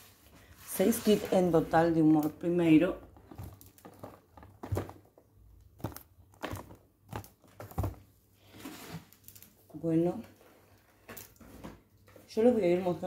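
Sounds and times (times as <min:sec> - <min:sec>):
packaging crinkling: 0:03.1 - 0:08.1.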